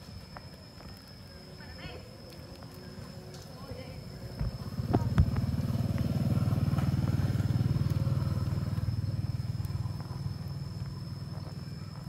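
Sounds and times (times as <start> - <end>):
motorcycle engine passing: 4.5 - 11.5.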